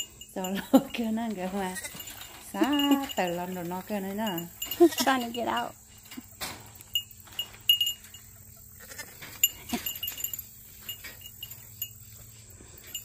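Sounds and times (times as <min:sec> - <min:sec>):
hay feeder clicks and rattles: 0:00.5 - 0:08.4, 0:09.0 - 0:13.0
goat bleat: 0:01.6 - 0:02.1, 0:04.7 - 0:05.4, 0:08.7 - 0:09.9.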